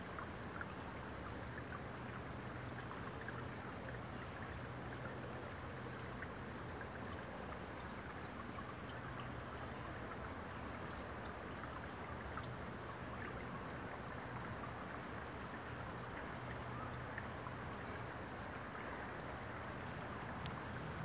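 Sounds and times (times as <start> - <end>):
water trickling: 0.0 - 21.0
faint low hum: 0.6 - 21.0.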